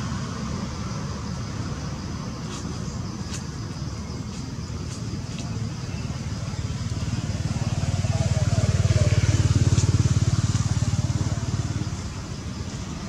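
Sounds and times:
vehicle engine passing: 6.2s - 13.0s.

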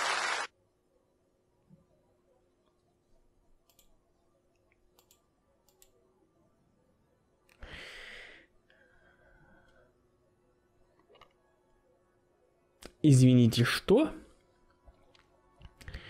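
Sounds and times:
faint clicks: 3.6s - 6.0s.

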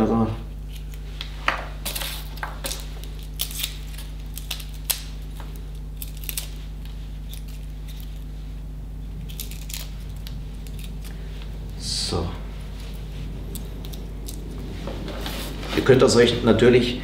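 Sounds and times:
steady low hum: 0.0s - 17.0s.

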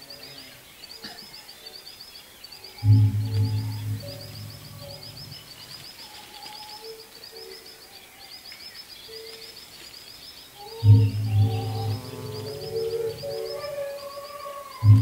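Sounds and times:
birds chirping in trills: 0.0s - 15.0s
faint held musical tones: 0.0s - 15.0s
loud deep sustained note: 2.8s - 5.7s, 10.8s - 13.4s.

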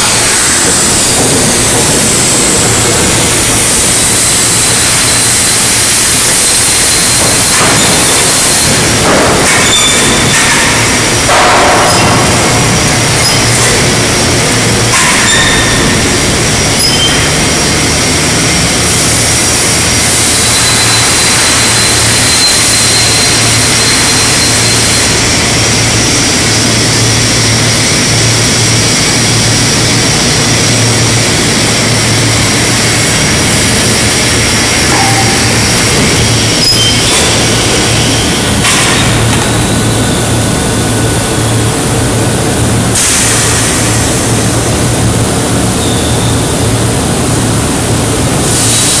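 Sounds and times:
industrial machinery din: 0.0s - 49.0s.

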